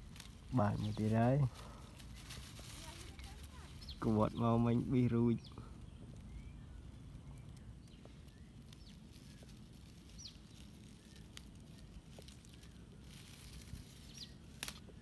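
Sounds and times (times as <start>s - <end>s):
soft rustling in grass: 0.0s - 15.0s
high bird chirps: 2.8s - 14.8s.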